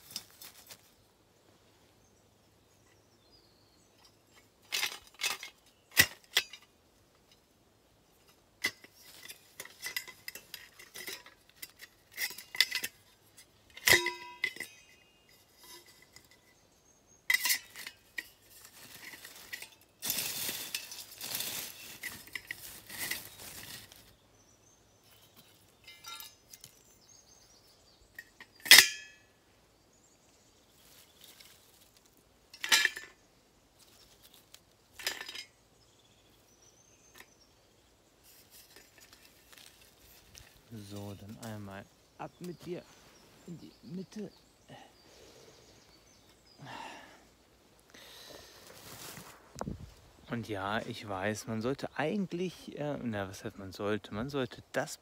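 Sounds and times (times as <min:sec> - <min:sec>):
scraping and rustling: 0:00.0 - 0:01.1, 0:17.3 - 0:24.2, 0:30.7 - 0:33.2, 0:33.8 - 0:35.5, 0:38.2 - 0:44.6, 0:48.0 - 0:51.1
metal parts clinking: 0:04.0 - 0:06.7, 0:08.6 - 0:16.6, 0:17.3 - 0:24.1, 0:25.1 - 0:26.9, 0:28.2 - 0:29.2, 0:30.9 - 0:33.2, 0:33.8 - 0:35.6, 0:38.2 - 0:41.6.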